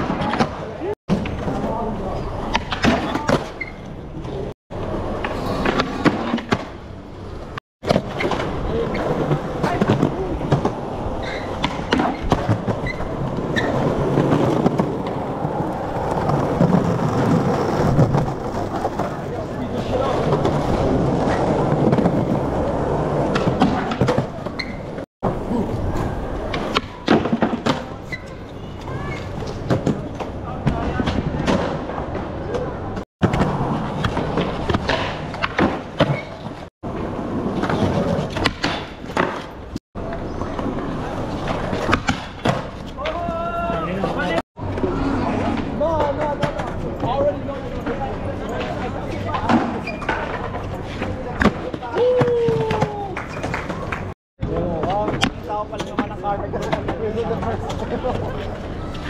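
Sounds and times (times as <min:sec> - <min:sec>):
skateboard wheels rolling on concrete: 0:00.0 - 0:59.0
skateboard clacking on ground: 0:44.6 - 0:59.0.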